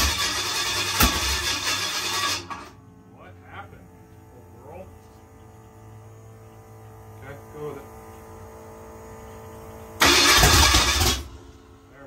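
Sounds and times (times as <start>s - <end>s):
engine cranking on starter: 0.0s - 2.8s, 10.0s - 11.6s
electrical hum: 0.0s - 12.0s.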